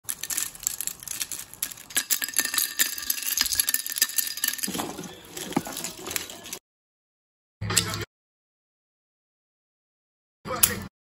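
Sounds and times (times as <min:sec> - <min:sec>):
rustling and handling: 0:00.0 - 0:06.6.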